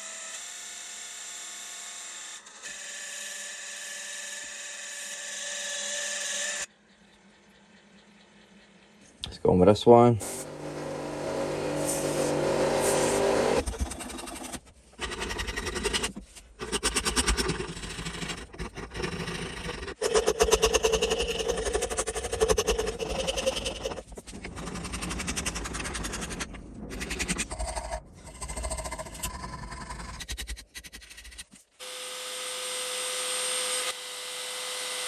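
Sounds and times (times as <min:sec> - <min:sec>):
belt sander running: 0:10.2 - 0:15.2, 0:16.7 - 0:24.1
file rasping on wood: 0:11.0 - 0:27.7.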